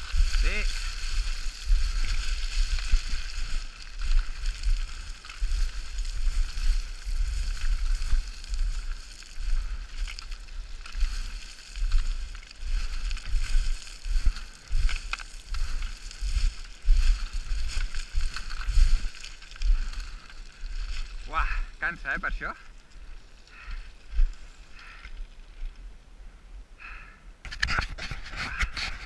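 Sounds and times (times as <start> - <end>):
wind buffeting microphone: 0.0 - 21.6
footsteps sliding on loose scree: 0.0 - 25.8, 27.5 - 29.0.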